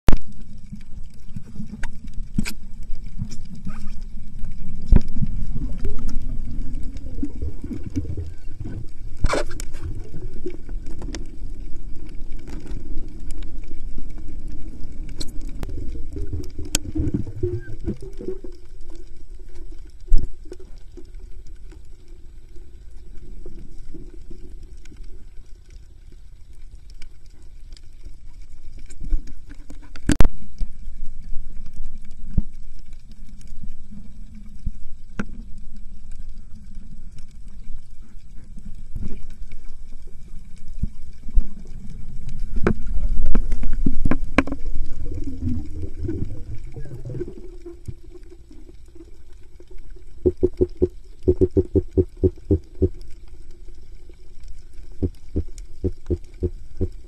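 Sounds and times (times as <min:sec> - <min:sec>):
underwater rumble of moving water: 0:00.1 - 0:57.0
sharp clicks and knocks: 0:50.2 - 0:53.0, 0:55.0 - 0:57.0.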